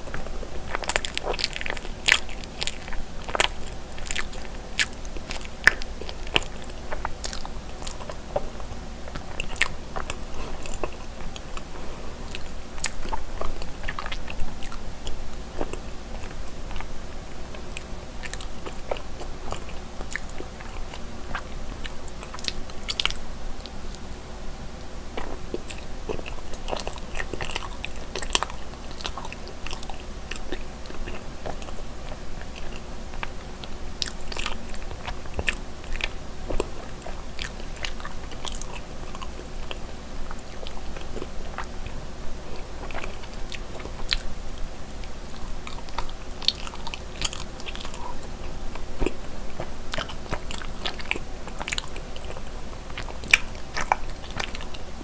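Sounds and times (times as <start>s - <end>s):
chewing sticky food: 0.0s - 24.1s, 25.0s - 55.0s.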